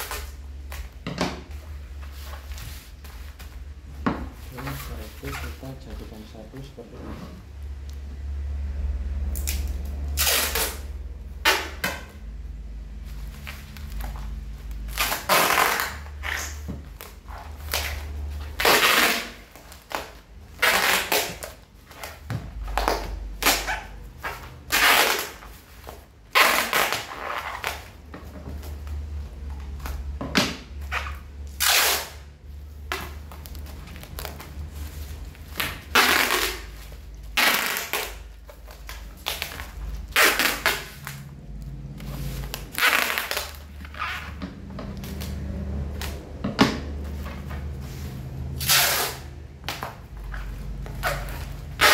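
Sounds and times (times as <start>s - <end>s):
packing tape ripping off roll: 0.0s - 1.0s, 9.3s - 12.2s, 13.4s - 28.0s, 29.8s - 41.3s, 42.0s - 44.4s, 48.6s - 49.9s, 50.9s - 51.9s.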